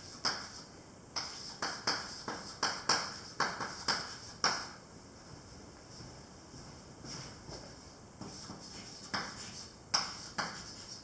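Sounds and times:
chalk tapping and scraping on blackboard: 0.0 - 4.8, 8.2 - 11.0.

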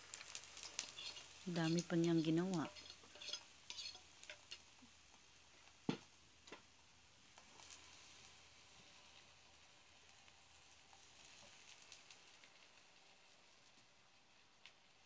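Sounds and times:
batter sizzling in pan: 0.0 - 15.0
utensils clicking on cookware: 0.6 - 4.6.

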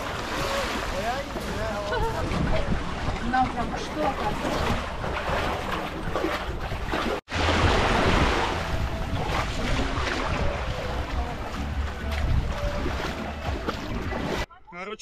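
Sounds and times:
sea water washing: 0.0 - 14.5
wind buffeting microphone: 1.2 - 6.9, 7.6 - 14.4.

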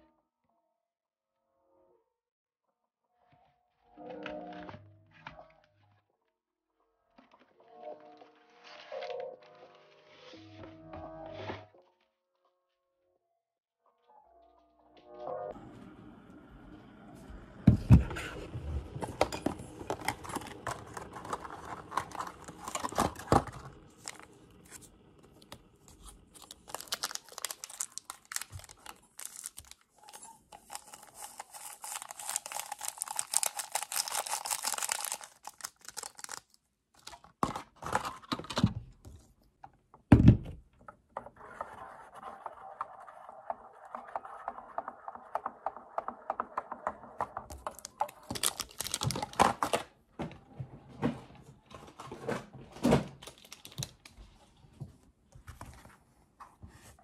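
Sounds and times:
paper packet rustling and tearing: 19.7 - 38.4, 47.5 - 49.9, 53.2 - 54.2.

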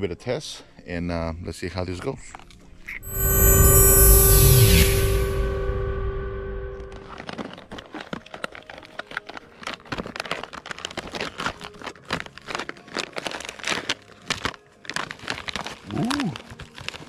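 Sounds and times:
foil pouch crinkling: 7.4 - 17.0.

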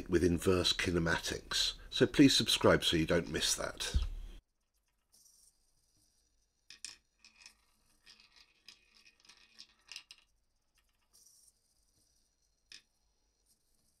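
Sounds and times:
small clicks and rattles: 6.7 - 11.2.

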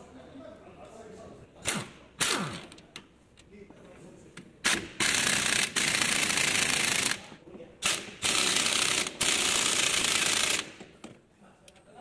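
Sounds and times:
pneumatic impact wrench hammering: 1.6 - 2.8, 4.6 - 11.1.

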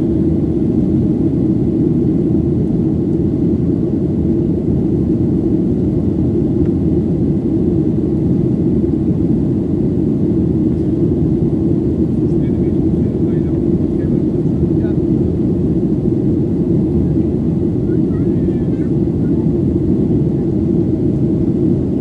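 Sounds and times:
jet engines roaring: 0.0 - 22.0.

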